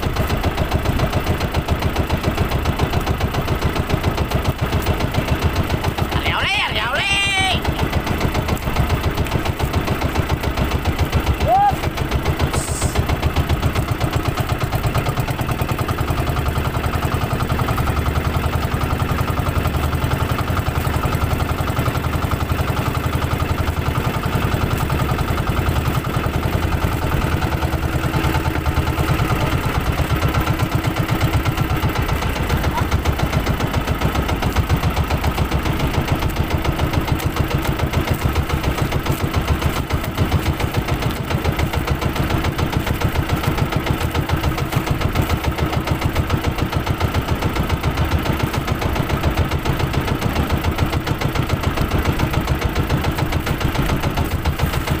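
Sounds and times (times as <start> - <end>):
boat engine running: 0.0 - 55.0.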